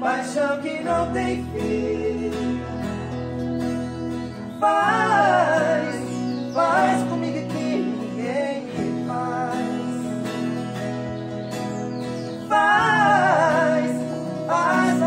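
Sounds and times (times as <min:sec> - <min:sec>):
man singing: 0:00.0 - 0:03.2, 0:04.6 - 0:10.5, 0:12.3 - 0:15.0
acoustic guitars playing: 0:00.0 - 0:15.0.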